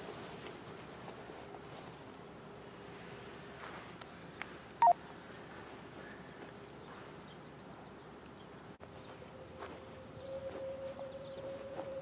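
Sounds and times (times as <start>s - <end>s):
outdoor warning siren: 9.1s - 12.0s.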